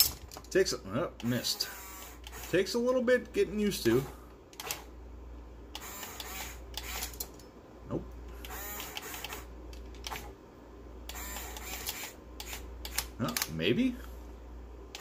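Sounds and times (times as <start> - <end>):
electric gear motors whirring: 1.2 - 2.6, 5.7 - 7.3, 8.4 - 10.3, 11.1 - 13.1.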